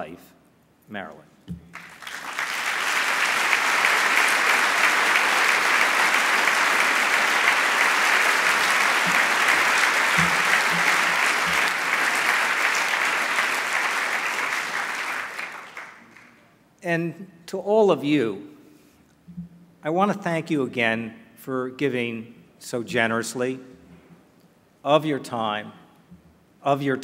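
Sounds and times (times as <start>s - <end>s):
audience applauding: 1.7s - 16.5s.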